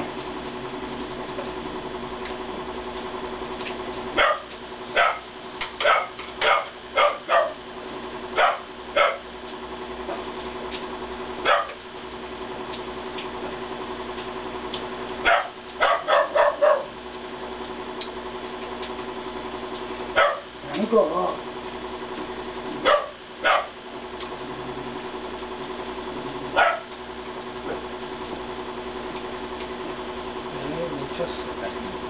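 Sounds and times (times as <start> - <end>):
steady hum: 0.0 - 32.0
small dog barking: 4.2 - 7.6, 8.4 - 9.3, 11.4 - 11.8, 15.2 - 17.0, 20.2 - 20.5, 22.8 - 23.8, 26.5 - 26.9.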